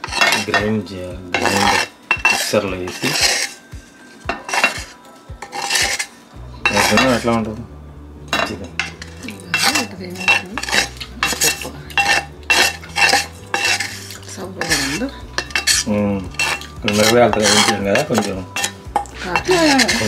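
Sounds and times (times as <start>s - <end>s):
metal spoon scraping cooking pan: 0.0s - 7.4s, 8.3s - 20.0s.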